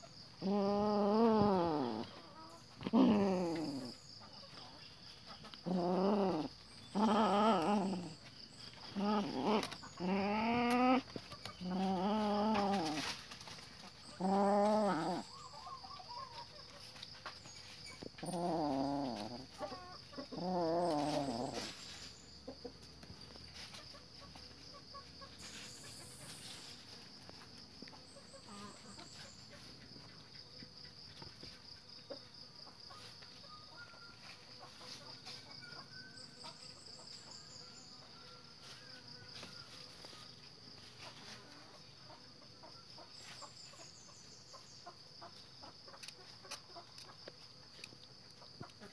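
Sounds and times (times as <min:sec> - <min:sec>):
kitten growling: 0:00.4 - 0:02.2, 0:02.8 - 0:04.0, 0:05.6 - 0:08.3, 0:08.9 - 0:13.1, 0:14.2 - 0:15.3, 0:18.2 - 0:19.5, 0:20.3 - 0:21.7.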